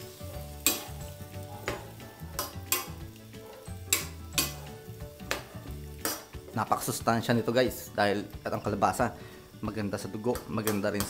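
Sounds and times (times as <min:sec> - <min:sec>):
sauce simmering: 0:00.0 - 0:07.0, 0:08.0 - 0:09.7
metal spoon scraping a pan: 0:00.2 - 0:06.4.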